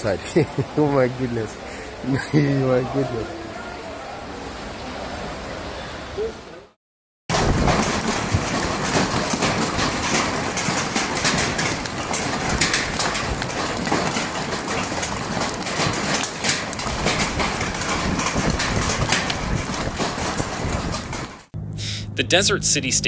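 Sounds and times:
hail pelting pavement: 0:07.3 - 0:21.5
strong wind rushing: 0:07.3 - 0:21.5.

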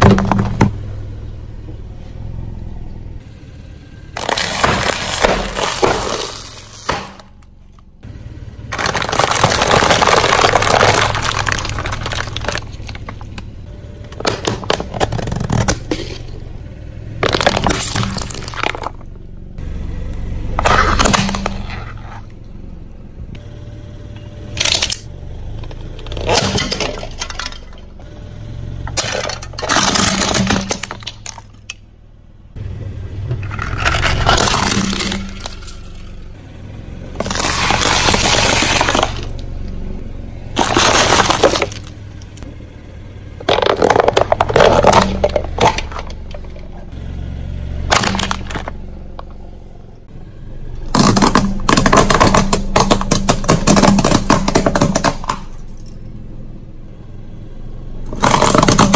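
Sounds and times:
tyre crushing brittle objects: 0:04.2 - 0:07.5, 0:08.6 - 0:16.4, 0:17.2 - 0:19.1, 0:20.6 - 0:22.3, 0:24.5 - 0:27.8, 0:28.8 - 0:31.8, 0:33.3 - 0:36.1, 0:37.2 - 0:39.5, 0:40.6 - 0:42.5, 0:43.4 - 0:46.8, 0:47.9 - 0:49.4, 0:50.9 - 0:55.9, 0:58.1 - 0:58.9
small sharp cracks: 0:08.7 - 0:13.5.

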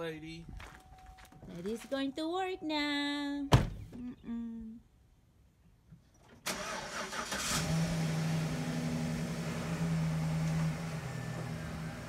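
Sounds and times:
pickup truck engine starting: 0:06.4 - 0:12.0.

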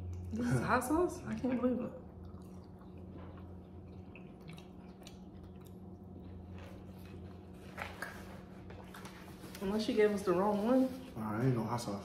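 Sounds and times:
steady low hum: 0:00.0 - 0:12.0
people chewing: 0:01.2 - 0:09.6.

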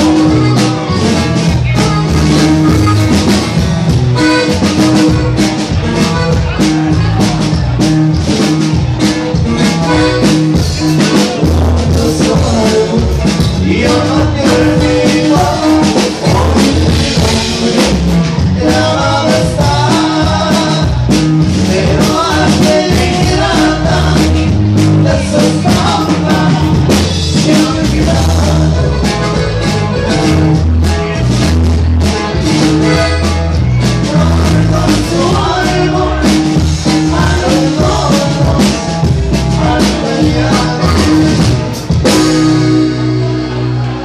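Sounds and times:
bass guitar: 0:00.0 - 0:44.0
drums: 0:00.0 - 0:44.0
person singing: 0:09.6 - 0:29.4, 0:33.8 - 0:43.0.

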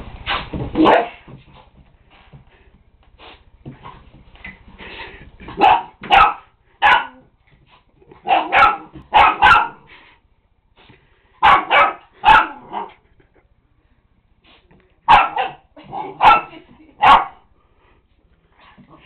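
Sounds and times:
puppy barking: 0:00.8 - 0:01.3, 0:05.5 - 0:07.3, 0:08.2 - 0:09.9, 0:11.4 - 0:13.0, 0:15.1 - 0:17.5.

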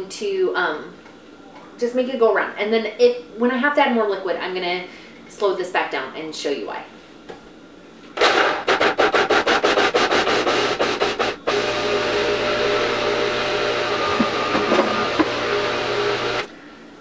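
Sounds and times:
food processor chopping rattle: 0:08.2 - 0:16.5
food processor motor humming: 0:08.2 - 0:16.5.

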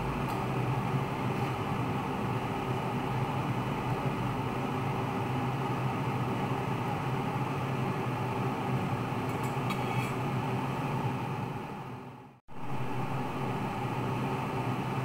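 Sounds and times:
low hum: 0:11.7 - 0:15.0.

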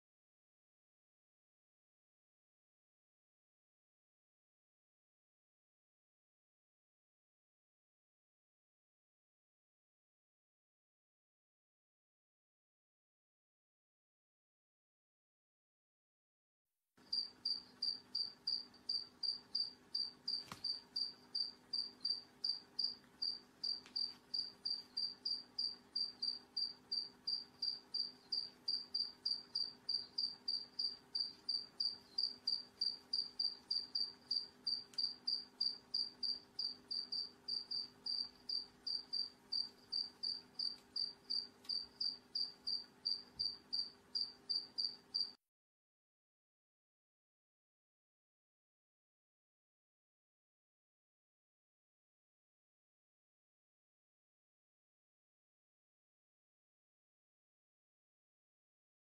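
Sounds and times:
insect chirping: 0:17.0 - 0:45.4.

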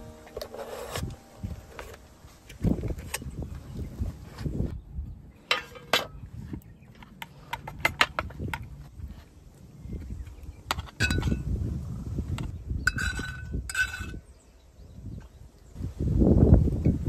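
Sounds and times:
metal tin and lid clinking: 0:00.0 - 0:03.4, 0:05.5 - 0:06.2, 0:10.7 - 0:11.5, 0:12.9 - 0:14.2.

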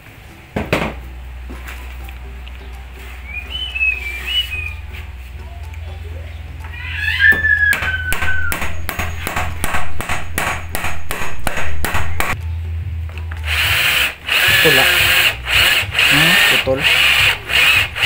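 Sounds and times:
person whistling: 0:03.2 - 0:04.9, 0:07.3 - 0:08.6
hammer tapping wood: 0:07.3 - 0:12.4.

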